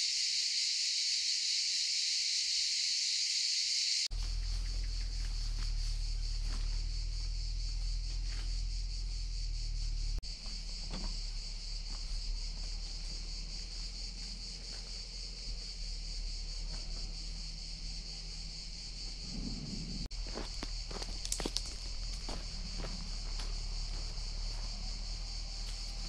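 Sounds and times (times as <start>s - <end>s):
insects chorus: 0.0s - 26.0s
low rumble: 11.2s - 26.0s.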